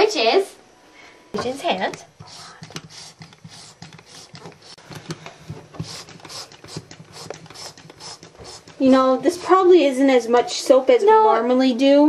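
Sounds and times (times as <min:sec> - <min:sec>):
soap pump squirting foam: 0:01.4 - 0:08.8.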